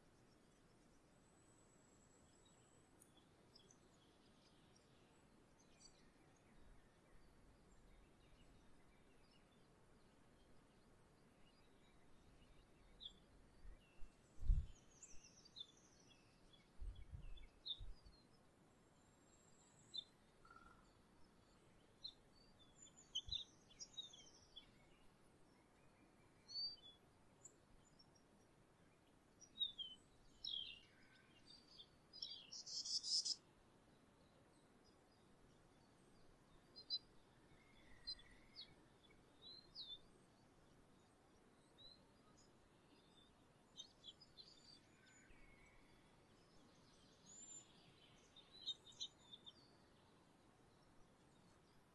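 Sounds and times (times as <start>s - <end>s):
songbirds chirping: 0.0s - 51.9s.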